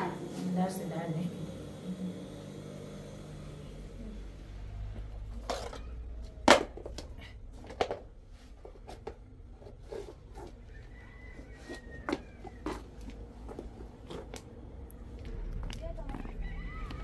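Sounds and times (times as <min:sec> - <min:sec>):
shoes scuffing on concrete: 0:11.3 - 0:14.5.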